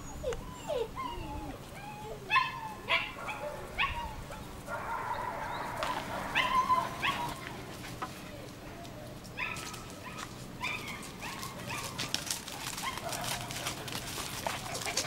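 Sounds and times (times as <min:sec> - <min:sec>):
puppies yelping and whimpering: 0:00.0 - 0:04.4, 0:05.1 - 0:08.6, 0:09.4 - 0:15.0
light clicking and rustling: 0:07.0 - 0:15.0.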